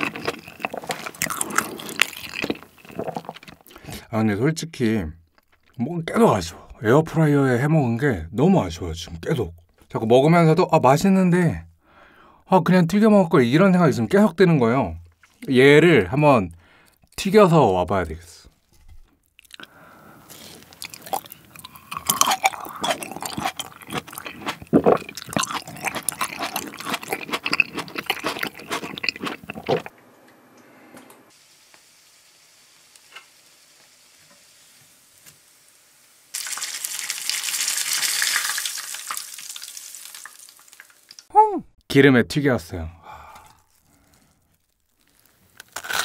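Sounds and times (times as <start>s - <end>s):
tomato being bitten and chewed: 0.0s - 3.8s, 20.3s - 29.9s, 43.3s - 46.0s
cutlet sizzling in hot oil: 31.3s - 41.3s.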